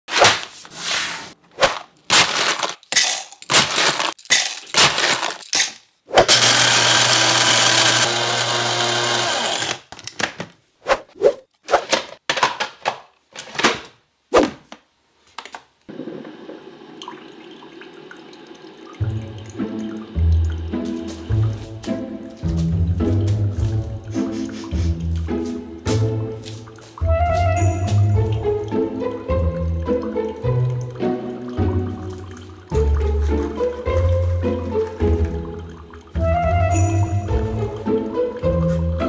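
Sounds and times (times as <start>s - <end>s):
kitchen clatters and knocks: 1.6s - 6.4s, 11.7s - 14.7s
electric coffee grinder grinding: 6.3s - 9.8s.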